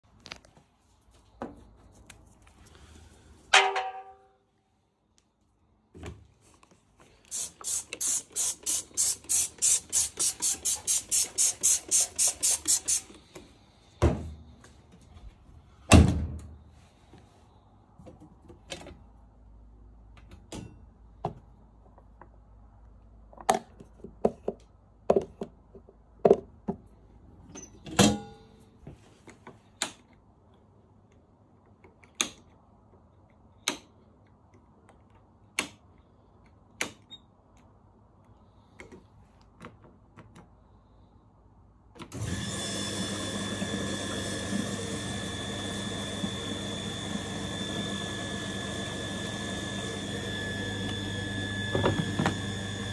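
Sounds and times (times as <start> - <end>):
loud door thump: 15.9 - 16.4.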